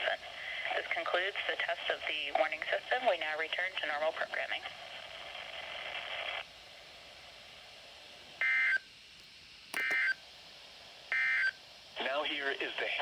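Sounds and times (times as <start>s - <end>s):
radio hiss: 0.0s - 8.2s, 11.9s - 13.0s.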